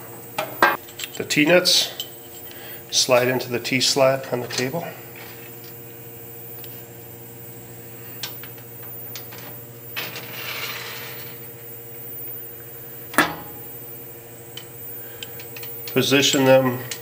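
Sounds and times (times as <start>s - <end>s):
steady low hum: 0.0s - 17.0s
metal scraping slide: 10.0s - 11.4s.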